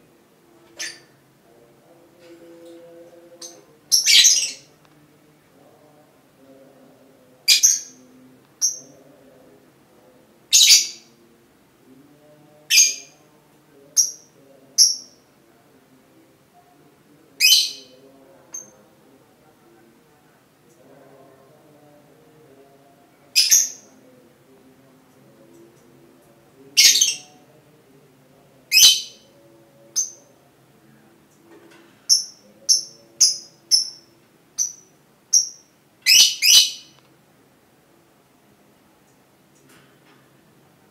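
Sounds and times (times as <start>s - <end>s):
faint low hum: 0.0s - 40.9s
lovebirds chirping: 3.3s - 4.7s, 32.1s - 37.0s.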